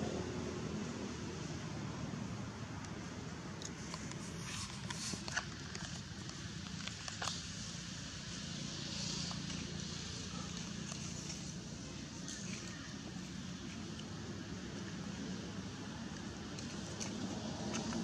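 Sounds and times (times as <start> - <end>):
small clicks and rustles: 3.6 - 8.4, 9.0 - 12.9, 16.1 - 18.0.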